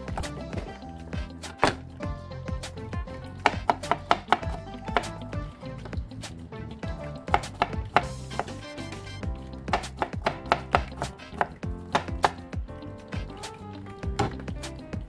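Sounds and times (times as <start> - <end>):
knife chopping on wooden board: 1.6 - 1.8, 3.4 - 5.1, 7.3 - 8.6, 9.7 - 12.4, 14.2 - 14.5.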